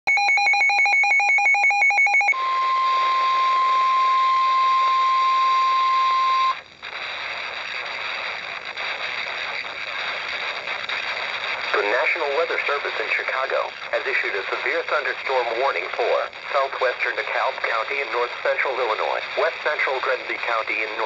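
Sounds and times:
warning alarm tone: 0:00.1 - 0:06.6
radio static: 0:02.4 - 0:21.0.

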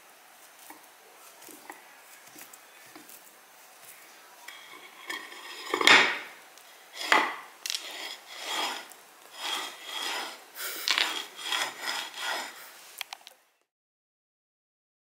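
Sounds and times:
rough rubbing strokes: 0:03.1 - 0:05.9, 0:06.8 - 0:12.9.

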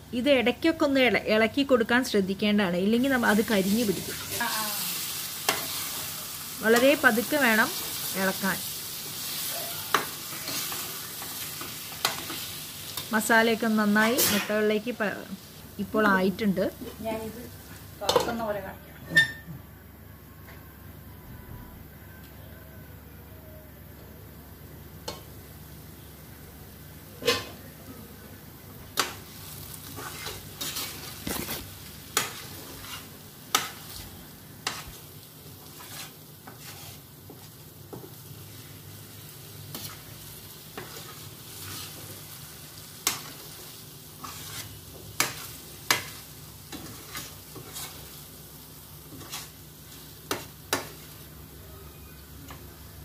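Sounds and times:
low sizzle of frying: 0:00.0 - 0:53.0
spoon scraping a pan: 0:05.4 - 0:06.1, 0:09.2 - 0:13.1, 0:14.0 - 0:14.7, 0:27.2 - 0:27.6, 0:29.8 - 0:38.8, 0:39.7 - 0:42.2, 0:43.0 - 0:48.2, 0:49.0 - 0:51.2.

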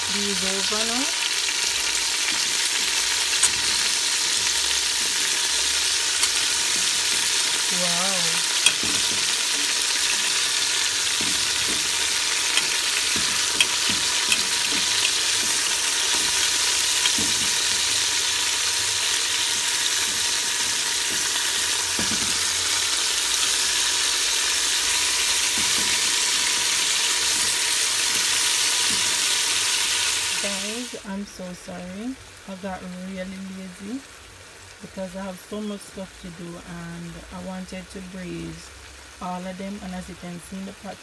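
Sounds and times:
meat sizzling in hot oil: 0:00.0 - 0:31.0.

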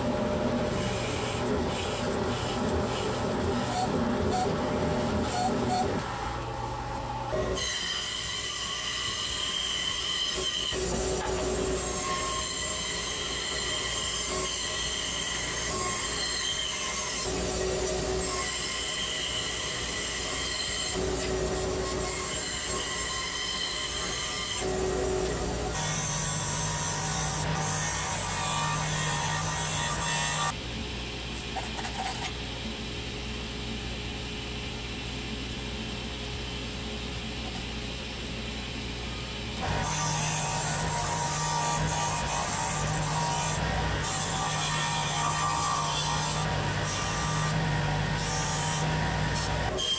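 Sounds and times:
bandsaw cutting plywood: 0:39.6 - 0:49.9.

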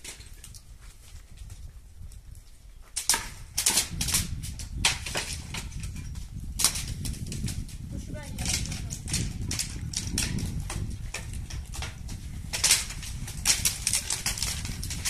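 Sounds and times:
footsteps on gravel and stone: 0:04.6 - 0:15.0.

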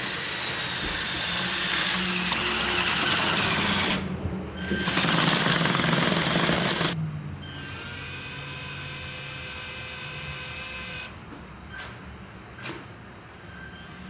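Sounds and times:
plastic tracks and gears rattling: 0:04.7 - 0:07.0.

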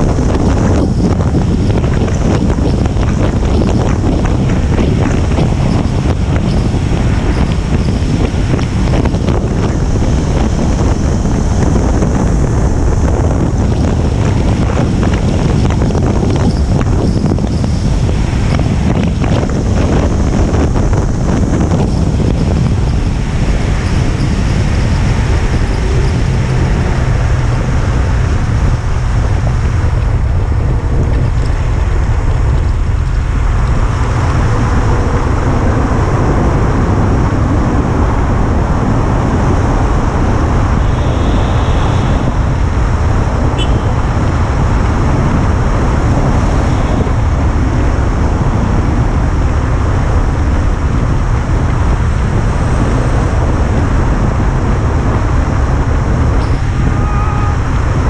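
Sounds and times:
motorcycle engine at high speed: 0:00.0 - 0:58.0
wind noise on microphone: 0:00.0 - 0:58.0.

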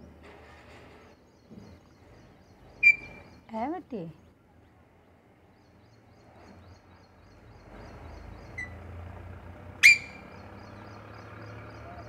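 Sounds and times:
parakeet loud call: 0:09.8 - 0:10.3.

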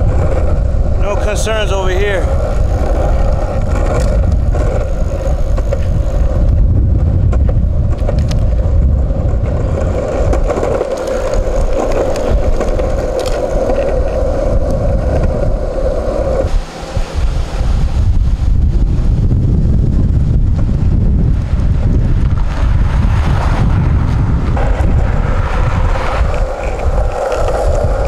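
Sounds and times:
skateboard wheels rumbling on asphalt: 0:00.0 - 0:28.0
steady hum: 0:15.4 - 0:20.2.

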